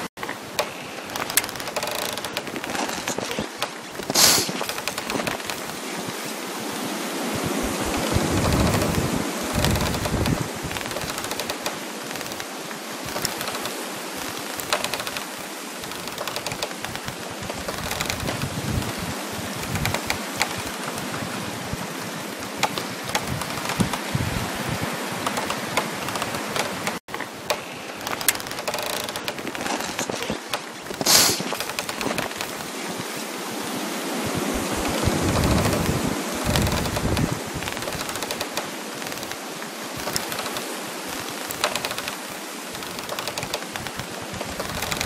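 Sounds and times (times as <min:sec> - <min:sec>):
frost and ice crackling: 0:00.0 - 0:06.7, 0:07.3 - 0:33.3, 0:34.3 - 0:45.0
rush of wind: 0:00.0 - 0:45.0
sharp hiss: 0:03.0 - 0:06.3, 0:30.2 - 0:33.2.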